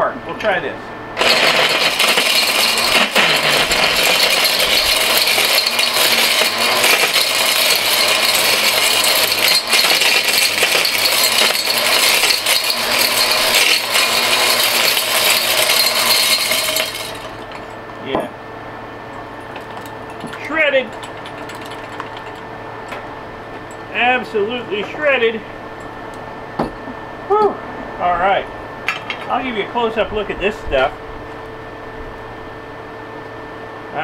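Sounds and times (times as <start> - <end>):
angle grinder struggling: 1.2 - 17.8, 19.5 - 22.4
ore crusher metallic clatter: 1.2 - 17.8, 19.4 - 23.0.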